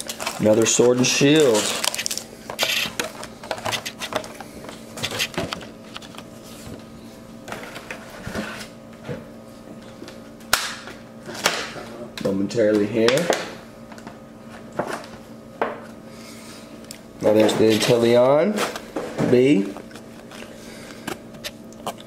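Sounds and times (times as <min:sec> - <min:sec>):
foil packs crinkling: 0:00.0 - 0:06.3
faint steady hum: 0:00.0 - 0:22.0.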